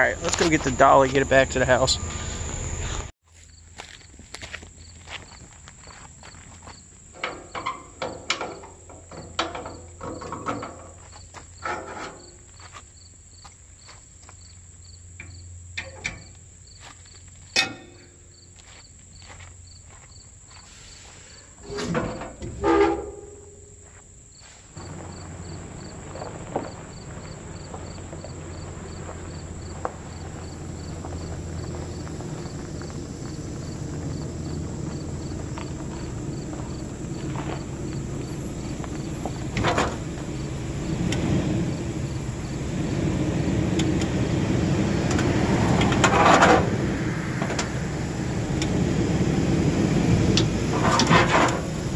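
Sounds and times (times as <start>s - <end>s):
footsteps crunching on gravel: 0.0s - 7.1s, 10.9s - 11.6s, 12.2s - 14.8s, 16.6s - 17.6s, 18.3s - 21.5s, 23.8s - 39.5s
pickup truck engine driving: 0.0s - 19.9s, 24.8s - 51.9s
insects buzzing: 0.0s - 51.9s.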